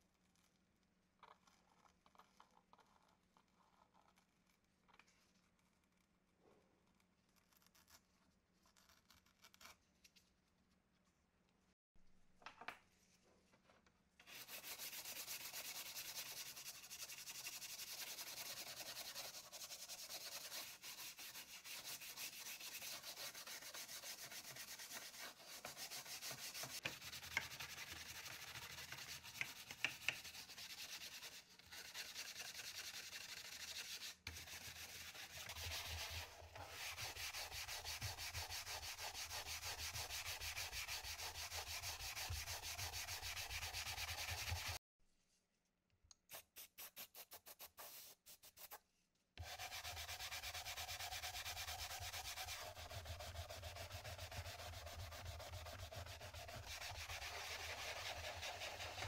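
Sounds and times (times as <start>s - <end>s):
brush scrubbing wet plastic: 14.3s - 44.8s, 49.4s - 59.0s.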